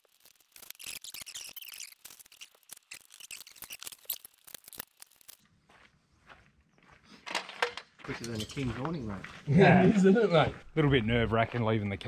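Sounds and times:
metal parts clicking and rattling: 7.3 - 8.7.

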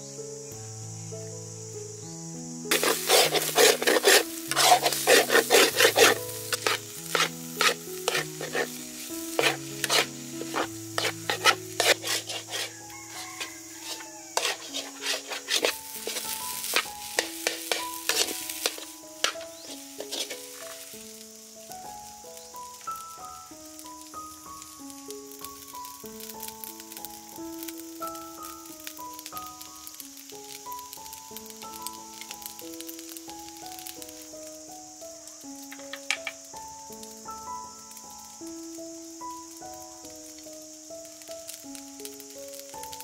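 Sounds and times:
background music: 0.5 - 21.2
metal spoon scraping wok: 2.7 - 21.0.

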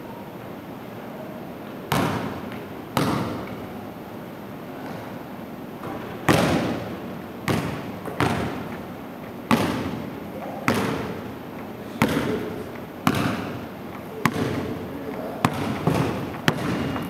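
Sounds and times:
basketball bouncing on hardwood floor: 1.9 - 3.6, 5.8 - 8.8, 9.5 - 10.1, 10.7 - 11.2, 12.0 - 12.4, 13.0 - 13.6, 14.2 - 17.0.

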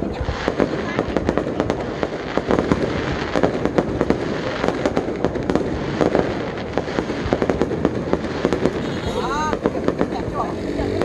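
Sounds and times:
firework shells bursting: 0.0 - 11.0
fireworks crackling: 0.0 - 11.0.

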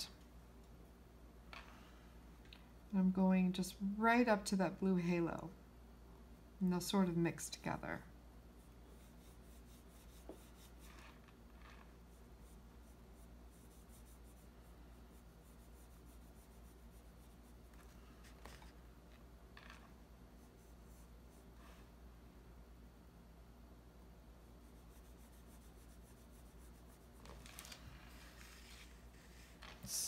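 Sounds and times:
low steady hum: 0.0 - 30.0
brush swishes on paper: 8.6 - 18.8, 24.6 - 30.0.

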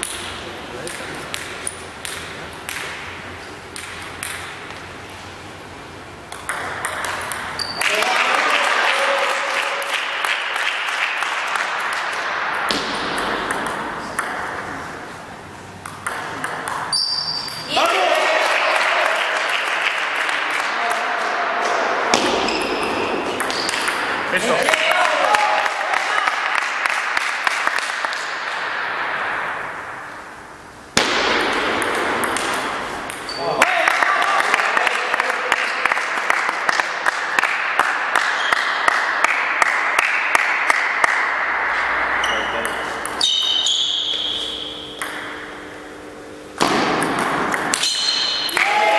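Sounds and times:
table tennis ball clicks: 6.3 - 7.8
reverberant gym hiss: 21.4 - 33.8, 38.7 - 48.9.

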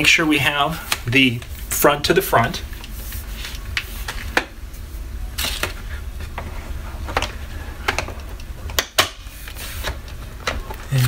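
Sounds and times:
low steady rumble: 0.0 - 11.0.

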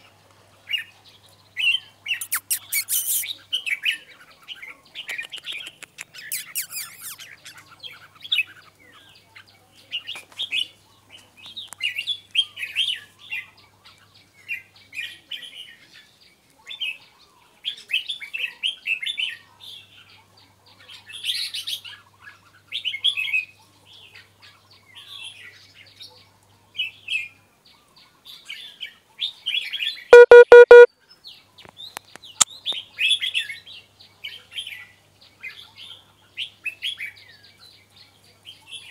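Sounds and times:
bulbuls chirping and singing: 1.7 - 9.3
loud buzzy tone: 30.2 - 30.9.

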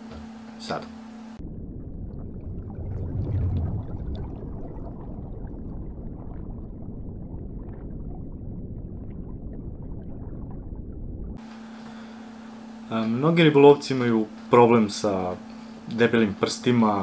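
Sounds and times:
underwater rushing wash: 1.4 - 11.4
small bubble pops: 2.4 - 10.6.

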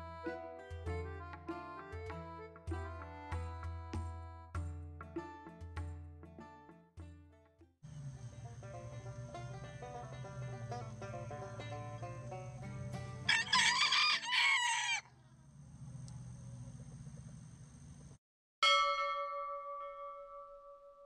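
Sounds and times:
background music: 0.0 - 14.2
rooster crowing: 10.2 - 15.2
bell-like chime: 18.6 - 21.0.

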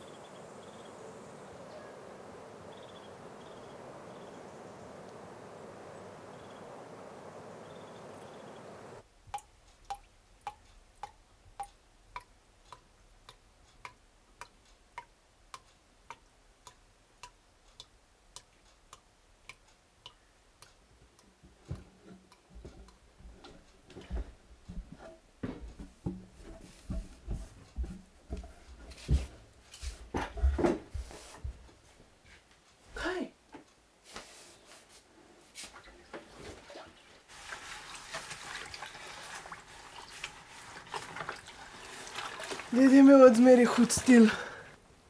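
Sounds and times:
clock ticking: 9.2 - 24.9.

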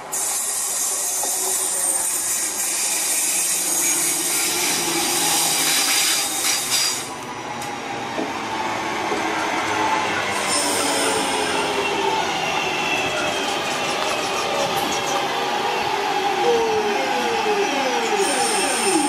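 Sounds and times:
train wheels rushing on rail: 0.0 - 19.0
high squealing of wheels: 0.1 - 7.2, 10.2 - 15.3, 18.1 - 19.0.

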